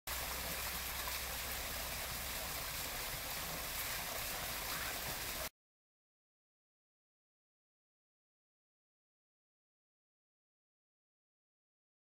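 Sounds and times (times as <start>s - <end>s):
water splashing down rock waterfall: 0.1s - 5.5s.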